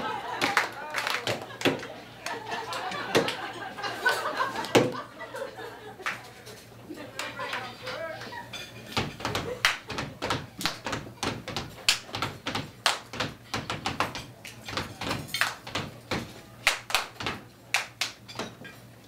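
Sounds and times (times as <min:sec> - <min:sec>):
hand claps and slaps: 0:00.4 - 0:03.4, 0:09.0 - 0:18.4.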